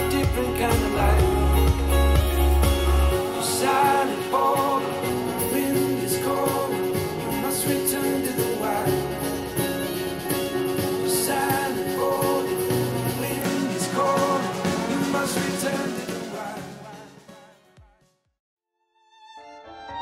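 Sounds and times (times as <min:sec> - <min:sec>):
heavy deep bass: 0:00.0 - 0:03.4
music through speaker: 0:00.0 - 0:18.0.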